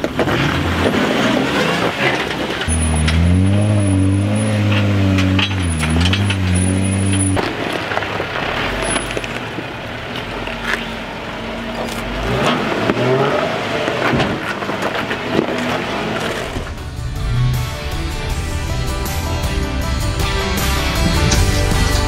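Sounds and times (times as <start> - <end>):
tyres grinding on rock: 0.0 - 9.6, 11.8 - 17.4
engine running at low speed: 2.5 - 22.0.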